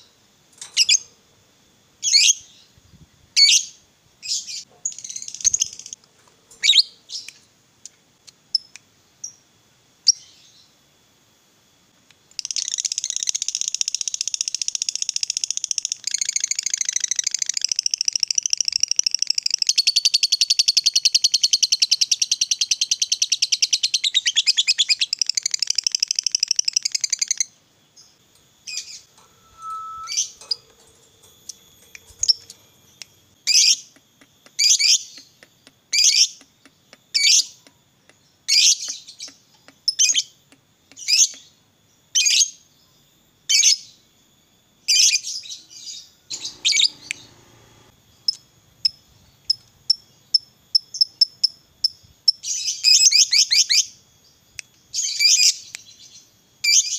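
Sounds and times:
bird shrill chirps: 20.0 - 33.9, 44.9 - 47.9
lovebird chattering trill: 46.3 - 47.4
bird ticking calls: 46.3 - 48.4.

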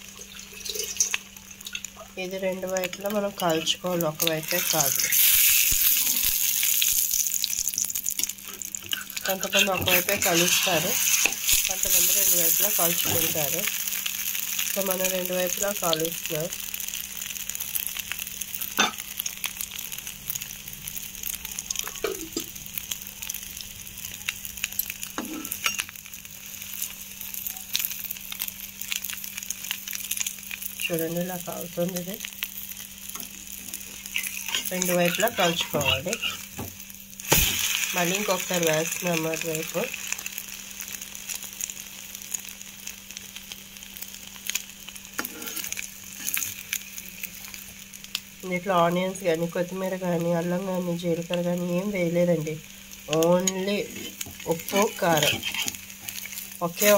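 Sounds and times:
omelette sizzling in oil: 0.0 - 56.9.

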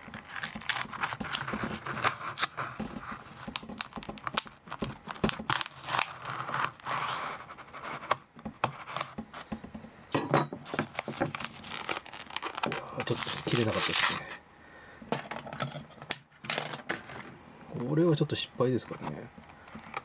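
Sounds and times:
plastic container cracking: 10.6 - 14.2.

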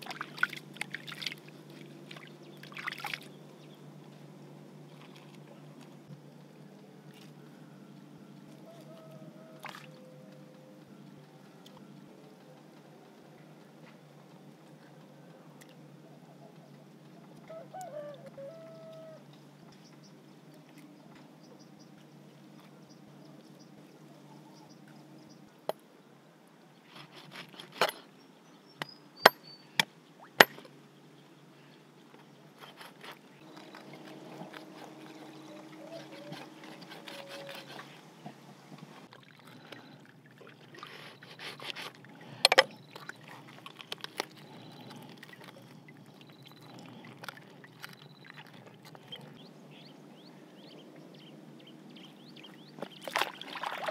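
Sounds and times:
water trickling and splashing: 0.0 - 3.7, 32.3 - 49.4, 52.0 - 53.9.

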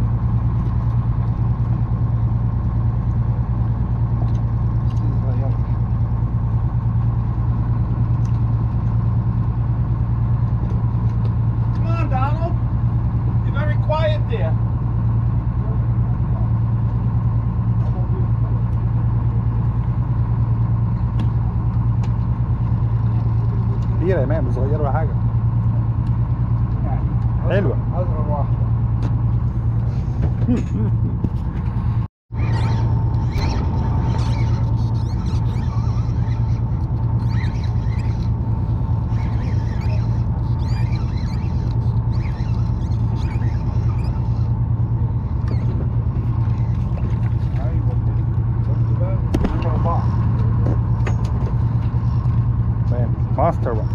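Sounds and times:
boat engine idling: 0.0 - 53.9
fishing reel squeaking: 32.3 - 44.6.

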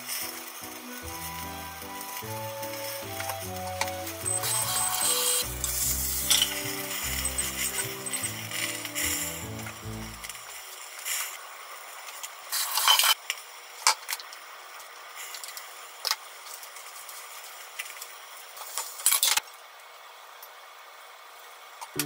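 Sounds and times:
utensils clattering: 0.1 - 10.4.

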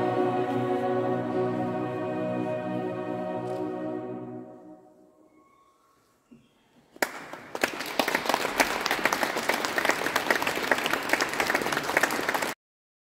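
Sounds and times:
audience applause: 7.0 - 12.6.

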